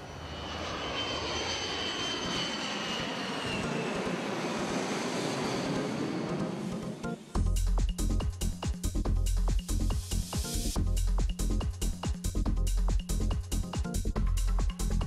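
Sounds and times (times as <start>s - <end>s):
jet airliner flying overhead: 0.0s - 7.4s.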